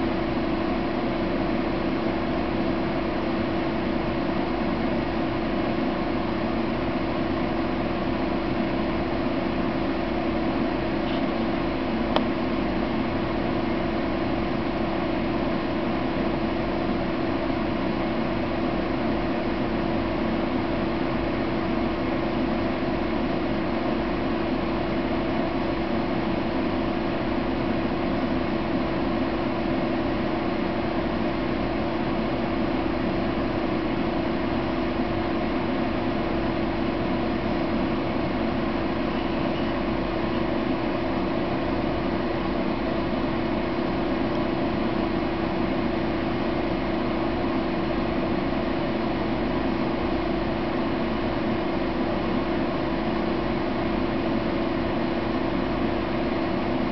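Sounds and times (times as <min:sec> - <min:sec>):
steady machine hum: 0:00.0 - 0:56.9.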